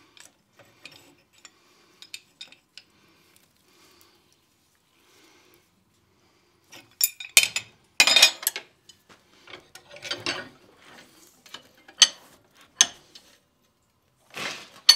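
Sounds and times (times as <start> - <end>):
metal tools clanking on steel: 0.2 - 2.9, 6.8 - 10.6, 11.4 - 13.3.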